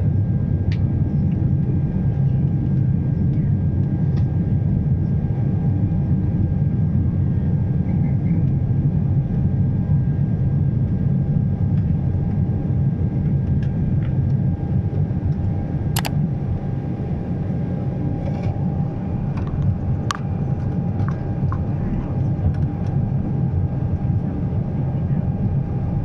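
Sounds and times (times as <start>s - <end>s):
airplane engines rumbling in cabin: 0.0s - 26.0s
sharp clicks: 16.0s - 16.2s.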